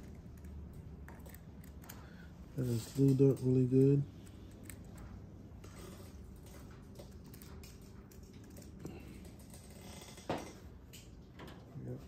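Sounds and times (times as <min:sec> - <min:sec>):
faint clicks and handling noises: 0:00.0 - 0:12.0
steady low hum: 0:00.0 - 0:12.0.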